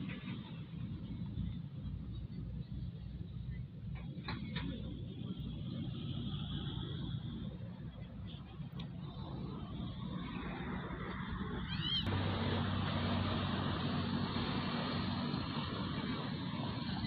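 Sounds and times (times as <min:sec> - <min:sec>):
low engine hum: 0:00.0 - 0:17.0
passing road traffic: 0:00.0 - 0:17.0.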